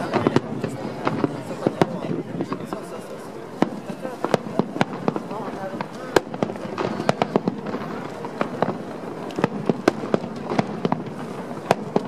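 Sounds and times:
firework shells bursting: 0.0s - 12.0s.

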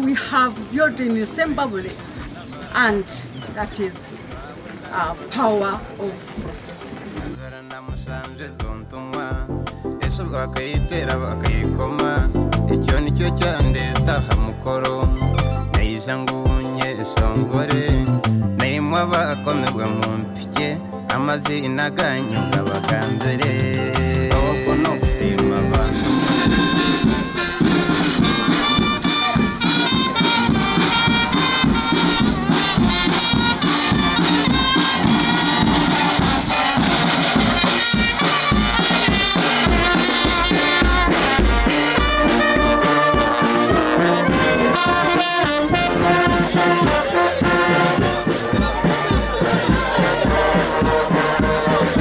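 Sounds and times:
snare and bass drums: 6.3s - 52.0s
brass playing: 23.6s - 52.0s.

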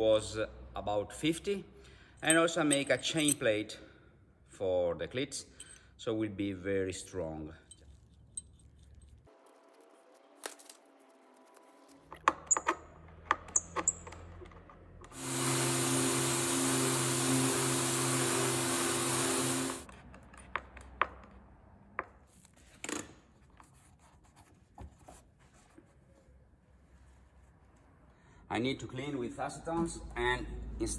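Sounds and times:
metal clinks: 2.2s - 3.5s, 5.5s - 5.9s, 7.5s - 9.3s
workshop vacuum running: 14.0s - 19.9s.

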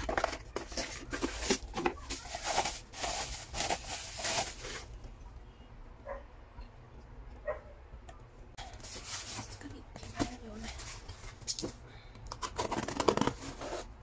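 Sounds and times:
bubble wrap crinkling: 0.0s - 5.0s.

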